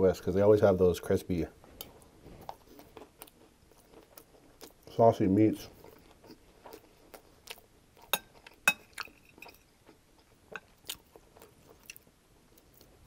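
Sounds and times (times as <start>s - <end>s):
wet chewing clicks: 1.8s - 5.0s, 5.8s - 13.0s
metal spoon clinking on glass bowl: 8.1s - 9.6s.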